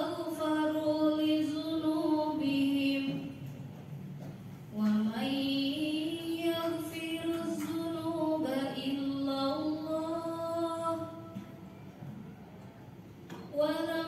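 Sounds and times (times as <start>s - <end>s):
woman chanting recitation: 0.0s - 3.5s, 4.7s - 11.6s, 13.5s - 14.0s.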